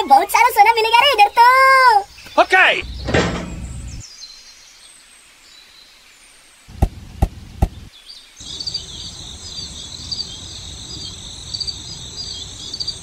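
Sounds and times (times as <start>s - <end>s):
insect chirping: 6.7s - 13.0s.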